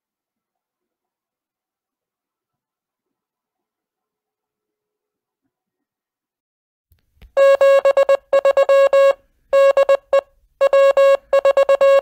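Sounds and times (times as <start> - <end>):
morse code beeping tone: 7.4 - 12.0.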